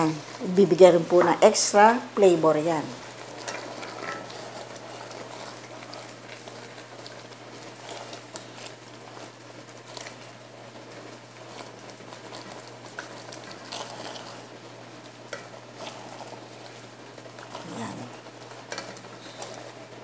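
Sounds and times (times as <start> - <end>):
steady low hum: 0.0 - 20.0
chicken sizzling in sauce: 2.8 - 20.0
spatulas scraping a pot: 3.3 - 6.4, 11.5 - 14.5, 15.3 - 19.8.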